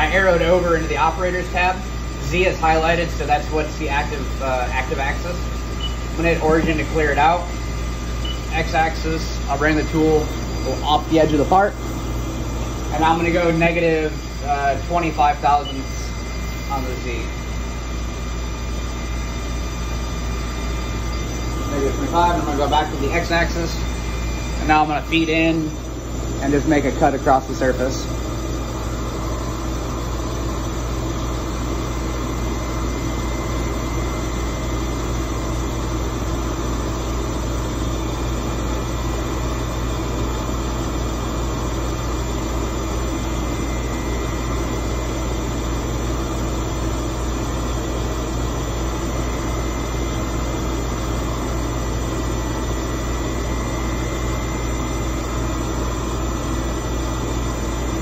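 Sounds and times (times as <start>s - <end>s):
lathe machine hum: 0.0s - 58.0s.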